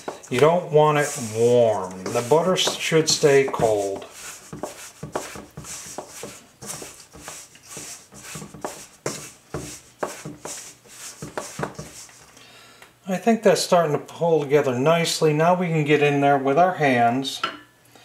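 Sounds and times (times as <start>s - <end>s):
fingers rubbing dough in bowl: 0.0s - 12.2s.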